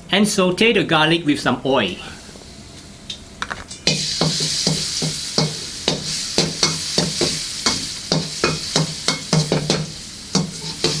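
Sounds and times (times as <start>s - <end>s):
garlic sizzling in hot oil: 3.8s - 11.0s
metal spatula scraping a wok: 3.9s - 11.0s.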